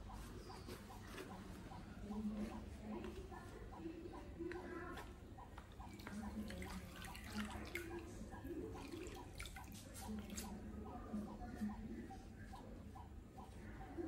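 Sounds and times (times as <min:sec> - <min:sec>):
water dripping into plastic basin: 0:02.9 - 0:14.0.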